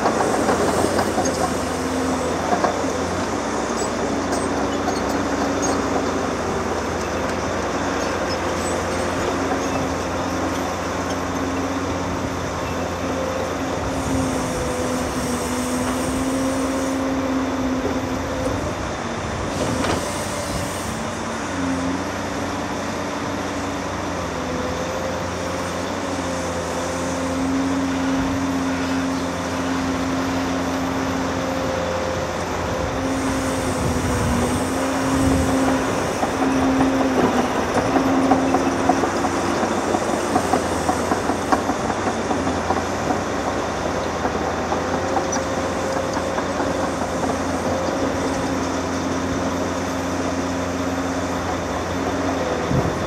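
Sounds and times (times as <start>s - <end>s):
heavy diesel machinery humming: 0.0s - 53.0s.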